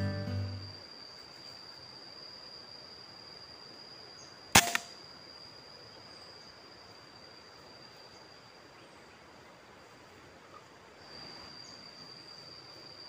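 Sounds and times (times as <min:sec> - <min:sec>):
air rifle shot crack: 0:04.6 - 0:04.9
softer second crack: 0:04.6 - 0:04.9.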